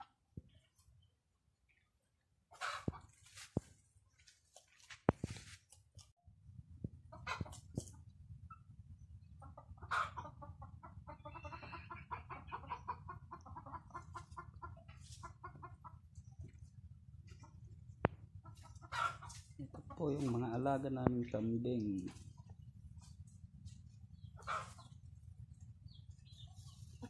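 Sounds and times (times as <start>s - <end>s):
chickens clucking: 1.6s - 3.7s, 6.8s - 21.2s, 21.8s - 27.0s
low steady rumble: 22.3s - 26.8s.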